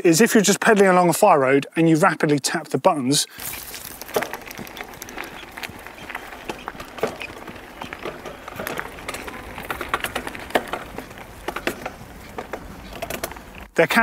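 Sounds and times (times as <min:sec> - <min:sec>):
bicycle chain clicking across cogs: 0:03.4 - 0:13.7
tyre noise on dirt track: 0:03.4 - 0:14.0.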